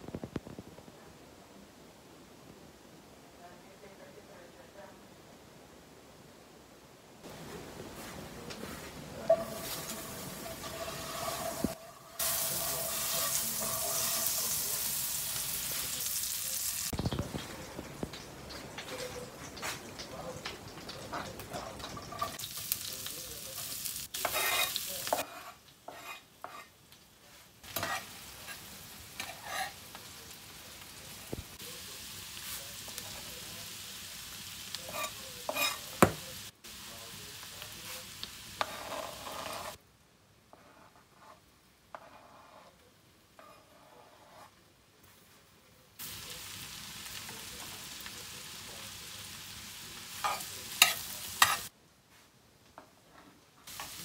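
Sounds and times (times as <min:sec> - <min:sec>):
onion sizzling in a frying pan: 0:07.2 - 0:39.8, 0:46.0 - 0:51.8, 0:53.6 - 0:54.0
metal spoon scraping a pan: 0:08.6 - 0:16.0, 0:23.5 - 0:26.7, 0:27.7 - 0:30.0, 0:34.8 - 0:36.0, 0:38.6 - 0:39.8, 0:40.5 - 0:42.8, 0:43.4 - 0:44.6, 0:50.1 - 0:51.7.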